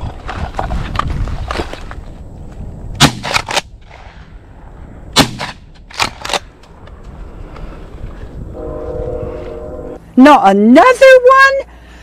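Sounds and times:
shotgun shots: 0:03.0 - 0:03.7, 0:05.2 - 0:06.2.

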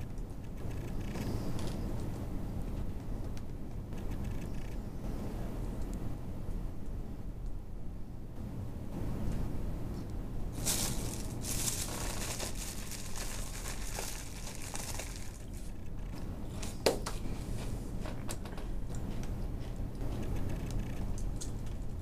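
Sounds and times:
steady low hum: 0:00.0 - 0:22.0
soft rustling and crinkling: 0:10.6 - 0:21.9.

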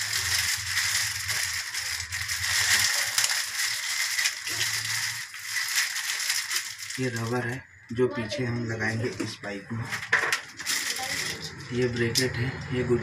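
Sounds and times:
plastic packet crinkling: 0:00.0 - 0:07.7, 0:09.9 - 0:11.9.

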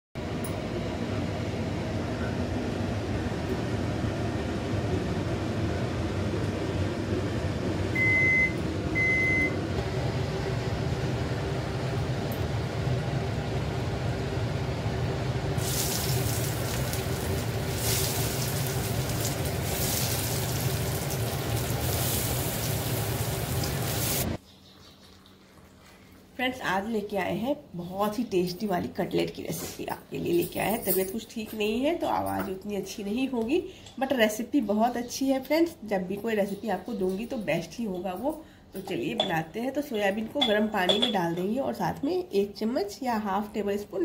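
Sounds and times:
low machine hum: 0:00.2 - 0:33.9
surging hissing noise: 0:15.6 - 0:24.4.

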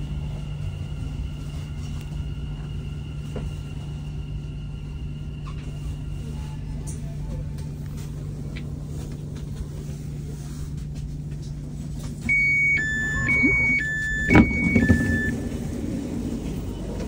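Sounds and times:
standing train humming: 0:00.0 - 0:17.0
two-tone door warning signal: 0:12.3 - 0:15.6.

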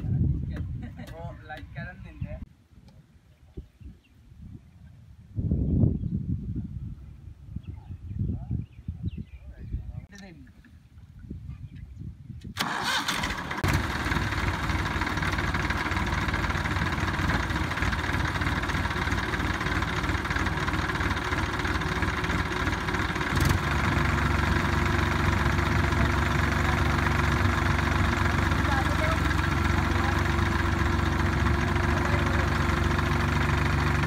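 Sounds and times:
tractor engine running: 0:12.6 - 0:34.0.

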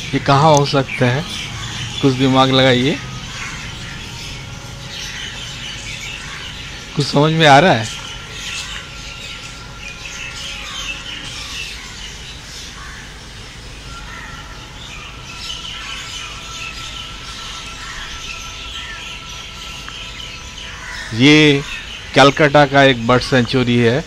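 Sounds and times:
birds chirping and calling: 0:00.0 - 0:24.0.

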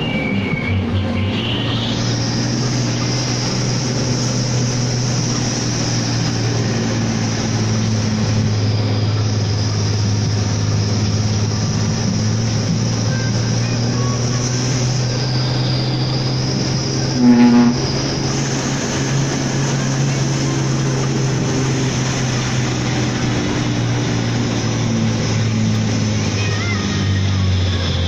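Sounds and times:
diesel truck engine running: 0:00.0 - 0:28.0
truck horn blast: 0:13.0 - 0:20.0.

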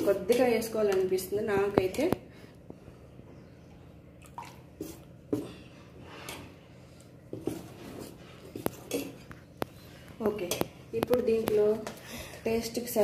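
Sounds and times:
ladle squishing thick batter: 0:01.8 - 0:12.0.

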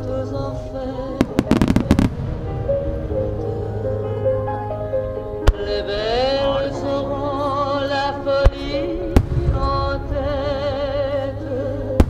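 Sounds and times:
low rumble: 0:00.0 - 0:12.0
music over loudspeakers: 0:00.0 - 0:12.0
firework reports: 0:01.0 - 0:03.6.

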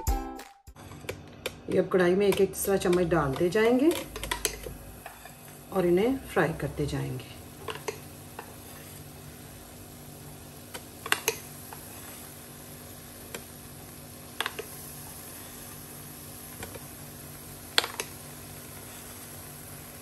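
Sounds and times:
batter frying in oil: 0:01.0 - 0:20.0
metal spoon tapping pan: 0:01.4 - 0:05.2
low hum and hiss: 0:01.7 - 0:20.0.

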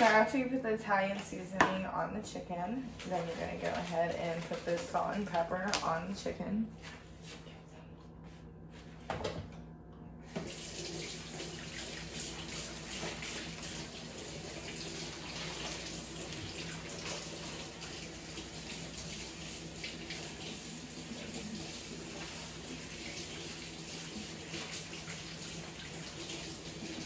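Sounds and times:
tap running into a sink: 0:10.3 - 0:13.9.

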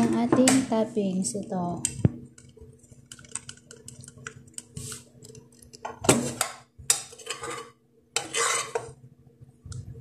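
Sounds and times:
metal spoon scraping a pan: 0:06.3 - 0:09.0.

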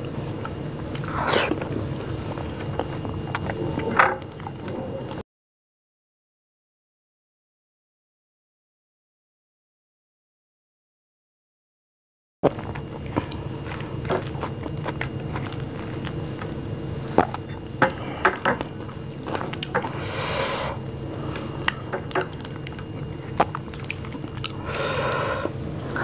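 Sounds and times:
faint steady hum: 0:00.0 - 0:05.2, 0:12.4 - 0:26.0.

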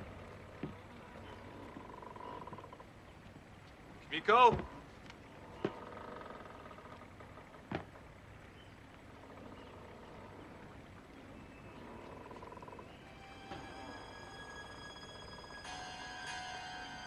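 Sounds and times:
faint music tones: 0:00.0 - 0:17.0
footstep on wooden deck: 0:00.6 - 0:00.9, 0:04.4 - 0:05.8, 0:07.7 - 0:08.0.

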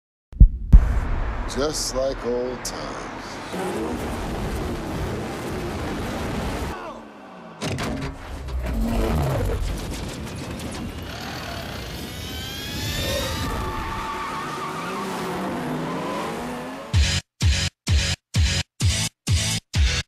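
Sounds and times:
car engines revving: 0:01.5 - 0:17.0
tyres squealing: 0:10.9 - 0:16.0
music: 0:17.0 - 0:20.0.

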